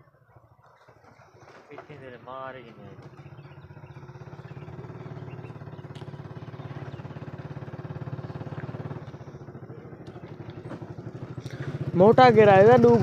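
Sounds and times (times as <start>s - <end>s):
engine running with pulsing beat: 2.6s - 13.0s.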